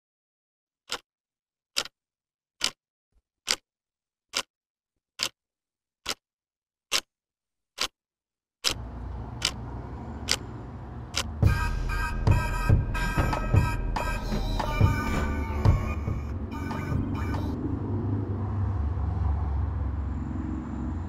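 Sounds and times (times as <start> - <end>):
clock ticking: 0.9 - 1.1, 1.8 - 2.0, 2.6 - 2.8, 3.4 - 3.6, 4.3 - 4.5, 5.2 - 5.4, 6.0 - 6.2, 7.8 - 8.0, 9.4 - 9.6, 10.2 - 10.5, 11.1 - 17.5
low drone: 8.8 - 21.0.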